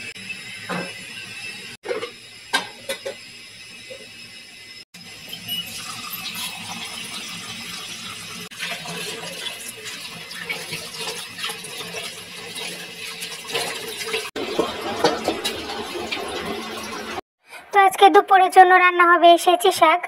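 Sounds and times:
tap water running: 0:00.0 - 0:17.2
colander knocking and rattling: 0:14.4 - 0:15.8.

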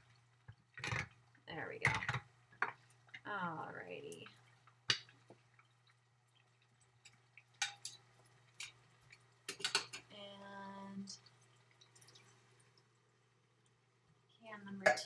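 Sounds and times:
metal cans and cookware clinking: 0:09.5 - 0:10.0, 0:14.8 - 0:15.0.

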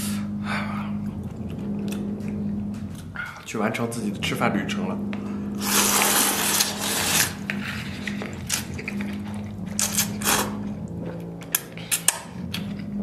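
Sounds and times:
droning hum: 0:00.0 - 0:13.0
slurping noodles: 0:05.3 - 0:13.0.

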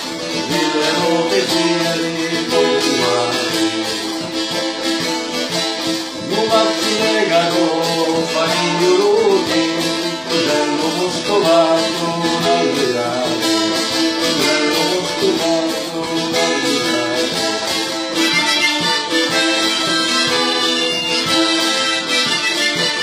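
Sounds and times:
folk music ensemble: 0:00.0 - 0:23.0.

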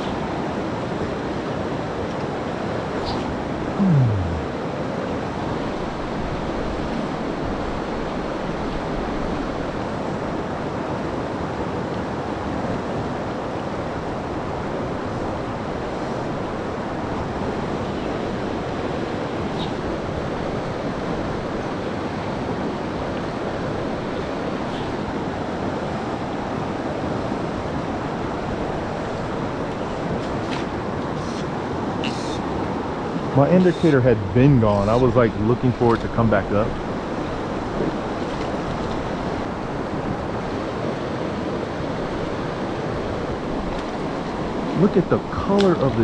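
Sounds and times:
fast-flowing river rushing: 0:00.2 - 0:46.0
loud sound dropping in pitch: 0:03.8 - 0:04.5.

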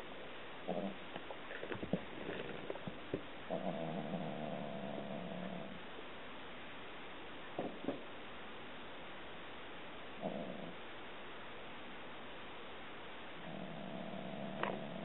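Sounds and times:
cat long growling call: 0:00.7 - 0:05.8, 0:13.4 - 0:15.0.

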